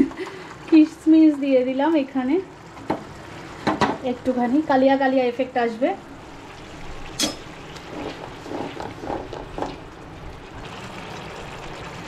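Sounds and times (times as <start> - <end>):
curry bubbling in a pan: 6.1 - 12.0.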